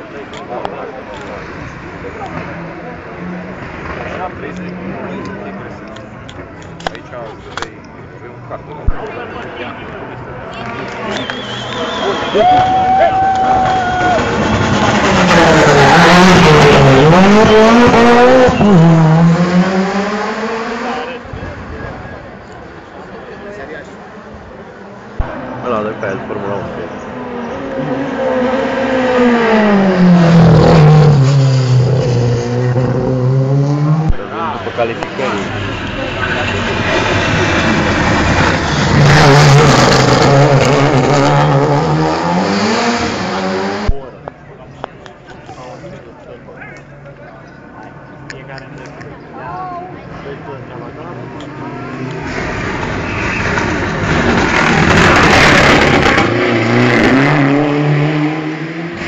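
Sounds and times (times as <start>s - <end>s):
rally car engine revving: 0.1s - 7.0s, 13.6s - 21.7s, 25.0s - 44.2s, 50.1s - 59.0s.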